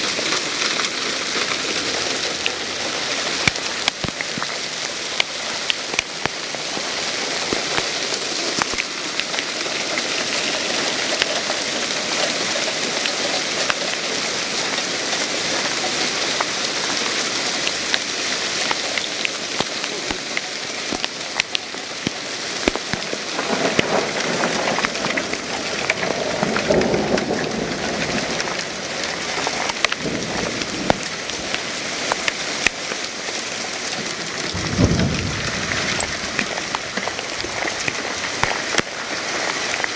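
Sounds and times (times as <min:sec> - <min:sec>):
hail and rain pelting ground: 0:00.0 - 0:39.9
deep rumble: 0:34.5 - 0:37.8.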